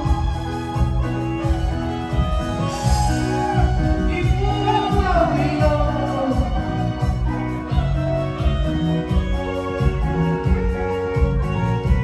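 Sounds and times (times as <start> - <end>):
live band playing dance music: 0.0 - 12.0
person singing: 2.8 - 8.0.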